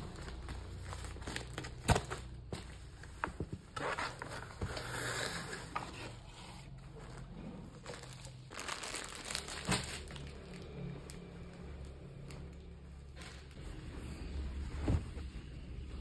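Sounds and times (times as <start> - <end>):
packaging crinkling: 7.8 - 11.2.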